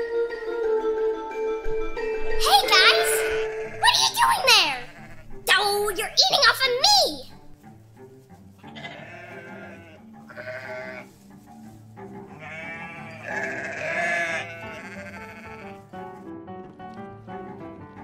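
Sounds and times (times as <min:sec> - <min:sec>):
light background music: 0:00.0 - 0:18.0
donkey braying: 0:02.4 - 0:07.3, 0:08.6 - 0:11.1, 0:12.2 - 0:15.9.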